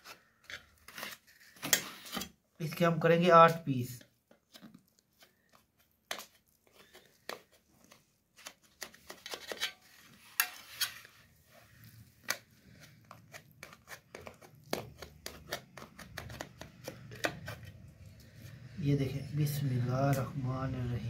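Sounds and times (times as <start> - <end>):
knife crunching through crust: 9.0 - 17.8.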